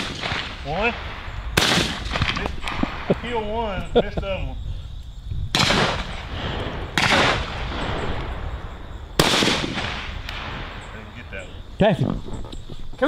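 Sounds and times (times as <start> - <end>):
shotgun shots with echo: 0.0 - 3.2, 5.5 - 6.3, 6.9 - 8.2, 9.2 - 10.9.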